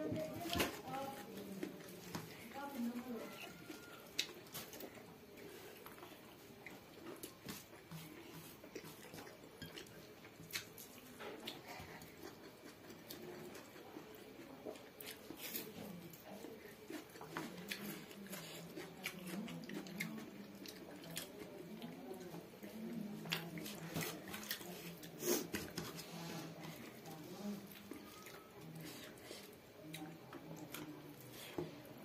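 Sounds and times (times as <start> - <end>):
wet chewing: 0.4 - 31.7.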